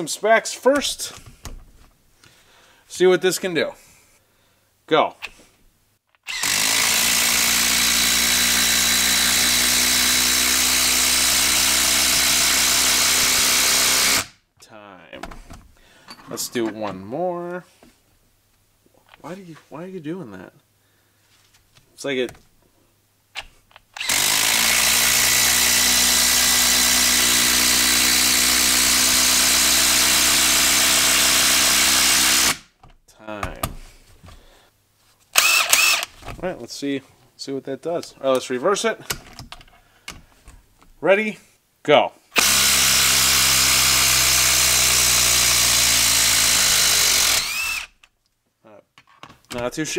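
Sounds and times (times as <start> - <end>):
impact driver buzzing rattle: 6.2 - 14.3, 23.9 - 32.6, 35.4 - 36.2, 42.4 - 48.0.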